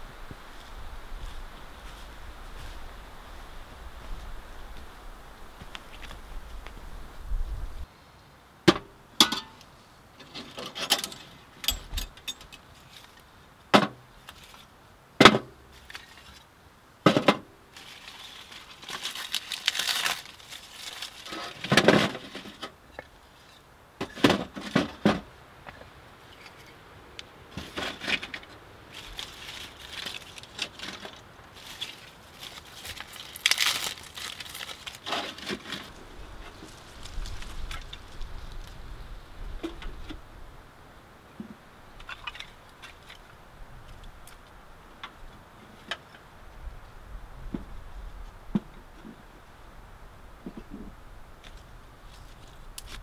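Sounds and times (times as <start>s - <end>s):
metal pot and stove clinking: 9.2s - 9.6s
rustling and light clatter of kindling: 9.2s - 13.3s, 13.9s - 14.8s, 15.4s - 16.5s, 17.1s - 26.8s, 27.5s - 40.2s, 50.4s - 53.0s.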